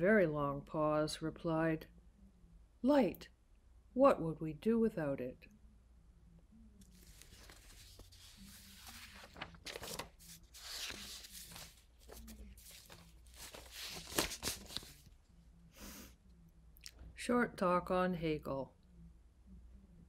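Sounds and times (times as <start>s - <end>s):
paper rustling and crinkling: 6.9s - 15.2s.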